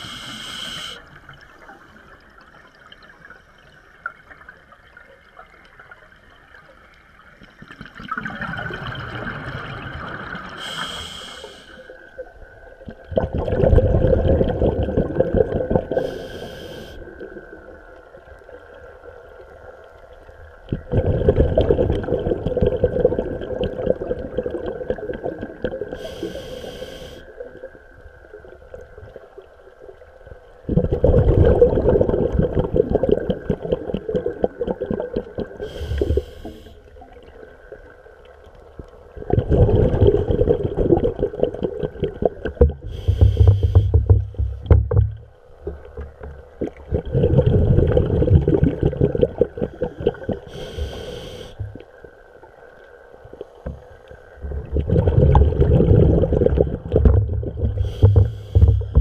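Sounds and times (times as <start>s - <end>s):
regulator valve hiss: 0.0s - 1.1s, 10.6s - 12.0s, 16.0s - 17.0s, 26.0s - 27.3s, 35.6s - 36.8s, 42.8s - 44.1s, 50.5s - 51.8s
underwater exhale bubbling: 7.7s - 17.8s, 20.6s - 27.7s, 30.6s - 37.9s, 39.1s - 52.1s, 53.5s - 59.0s.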